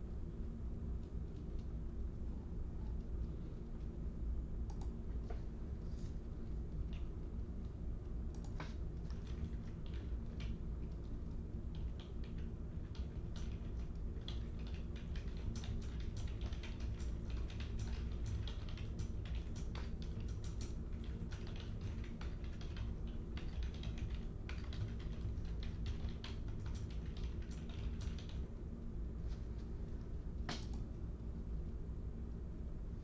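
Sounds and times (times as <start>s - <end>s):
steady low hum: 0.0s - 33.0s
typing on keyboard: 8.3s - 28.4s.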